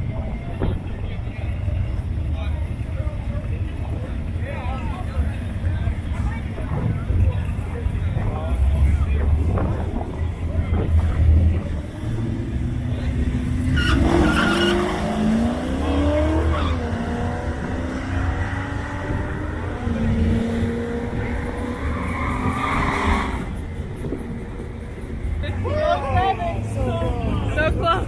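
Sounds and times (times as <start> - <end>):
drag car accelerating: 5.1 - 25.6.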